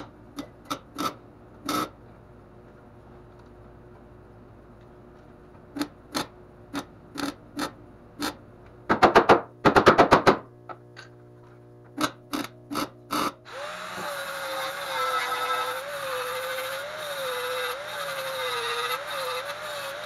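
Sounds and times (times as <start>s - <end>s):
welder tacking steel in bursts: 12.0s - 20.0s.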